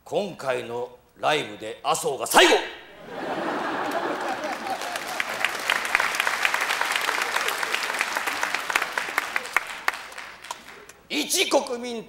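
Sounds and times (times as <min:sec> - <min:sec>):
audience clapping: 0:03.4 - 0:11.0.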